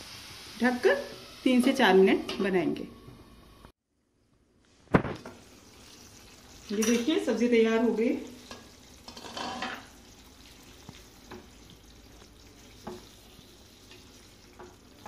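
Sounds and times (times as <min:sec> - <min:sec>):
faint simmer: 0:04.6 - 0:15.0
spatula scraping pan: 0:08.4 - 0:09.9.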